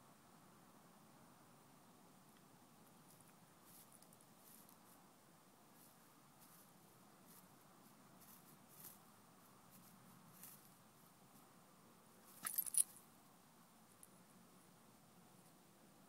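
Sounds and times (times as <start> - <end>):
quiet hiss: 0.0 - 16.0.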